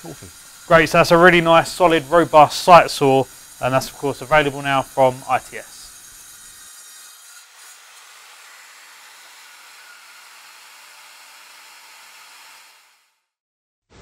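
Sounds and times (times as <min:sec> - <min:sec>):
steady hiss of rushing air: 0:00.0 - 0:05.9.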